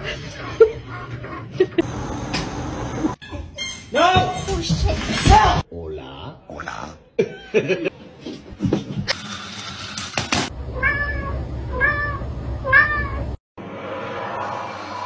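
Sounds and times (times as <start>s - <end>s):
cat meowing: 10.8s - 13.2s
rushing noise: 13.6s - 15.0s.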